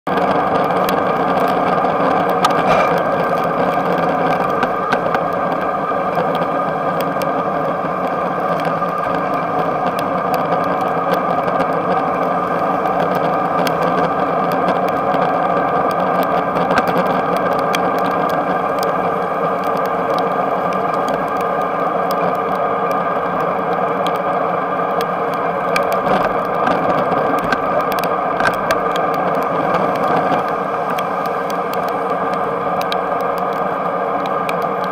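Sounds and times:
electric bike droning: 0.1 - 34.9
small clicks: 24.9 - 34.9.

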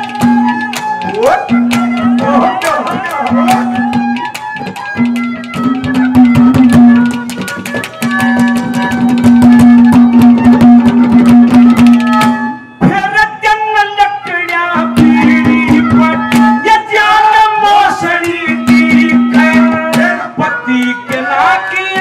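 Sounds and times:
wavering melody line: 0.0 - 12.6
hand drums fast rhythm: 0.0 - 13.2, 14.5 - 22.0.

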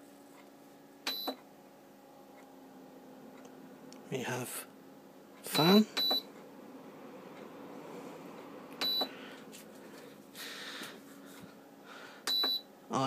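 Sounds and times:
cooler fan humming: 0.0 - 13.0
control panel beep: 1.1 - 1.4, 5.5 - 6.3, 8.8 - 9.1, 12.3 - 12.7.

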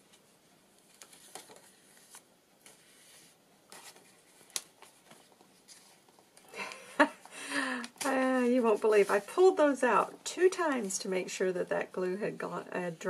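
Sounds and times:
paper pages rustling: 0.0 - 6.5, 7.8 - 9.6.

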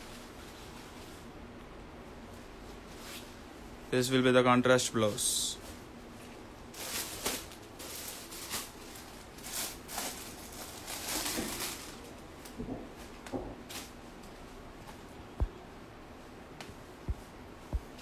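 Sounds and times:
plastic packets rustling: 5.2 - 12.7.

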